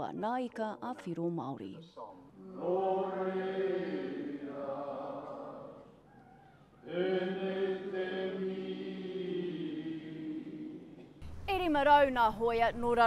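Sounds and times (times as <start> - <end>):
men singing in unison: 2.4 - 5.9, 6.8 - 11.2.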